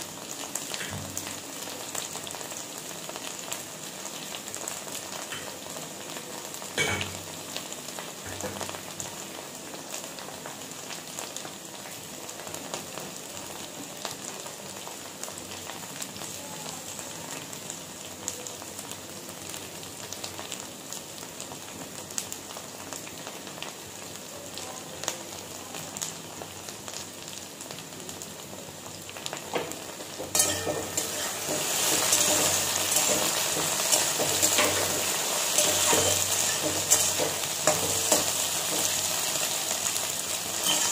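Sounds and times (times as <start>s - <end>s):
okra sizzling in wok: 0.0s - 40.9s
spatula scraping pan: 30.2s - 39.3s, 40.6s - 40.9s.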